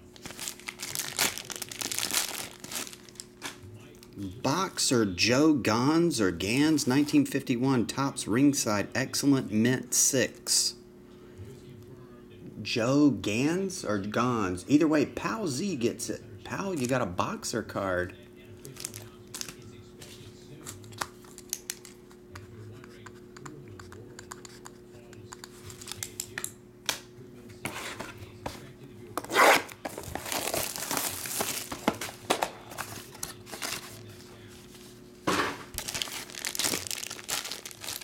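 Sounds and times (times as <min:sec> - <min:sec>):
foil packaging crinkling: 0:00.0 - 0:04.2, 0:18.6 - 0:19.7, 0:29.4 - 0:34.8, 0:35.7 - 0:38.0
packaging ripping: 0:00.1 - 0:03.6, 0:18.6 - 0:19.6, 0:29.3 - 0:32.2, 0:35.7 - 0:38.0.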